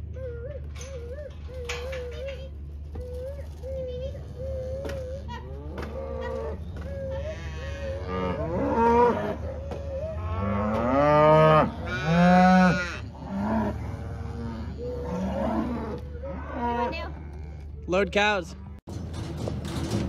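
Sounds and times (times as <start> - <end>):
cattle mooing: 5.0 - 17.8.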